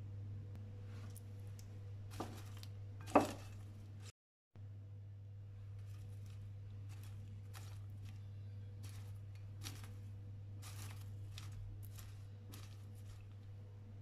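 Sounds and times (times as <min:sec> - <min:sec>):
steady low hum: 0:00.0 - 0:14.0
spatula rustling through popcorn: 0:00.8 - 0:04.1, 0:05.5 - 0:14.0.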